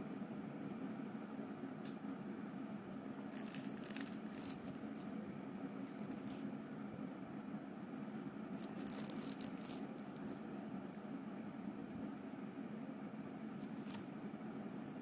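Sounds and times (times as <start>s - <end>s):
steady low hum: 0.0s - 15.0s
plastic film crinkling: 3.3s - 5.1s, 5.8s - 6.4s, 8.6s - 10.4s, 13.6s - 14.1s.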